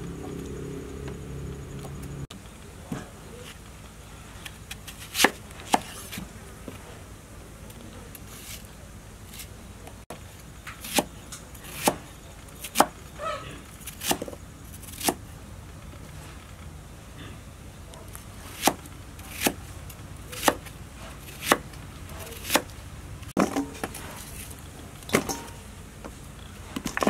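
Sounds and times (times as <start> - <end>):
knife cutting onion: 4.5 - 6.8, 8.1 - 8.7, 10.8 - 13.0, 13.7 - 15.2, 17.9 - 22.8.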